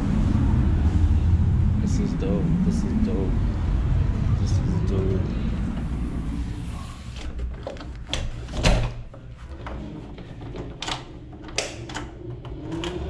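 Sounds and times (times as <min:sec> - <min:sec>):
door clicks and knocks: 0:07.3 - 0:13.0
door thud: 0:08.1 - 0:09.1.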